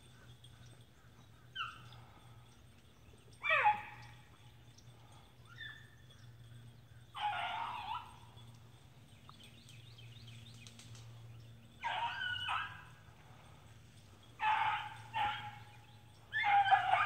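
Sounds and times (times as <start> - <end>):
dogs baying: 0.0 - 9.5, 11.0 - 17.0.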